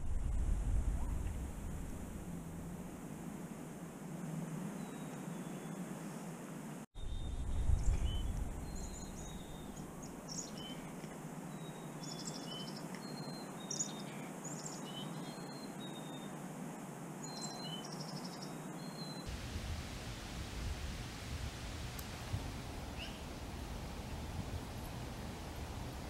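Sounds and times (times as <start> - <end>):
brief low rumble: 0.0 - 2.9
background hiss: 0.0 - 26.0
chickadees calling: 22.8 - 26.0.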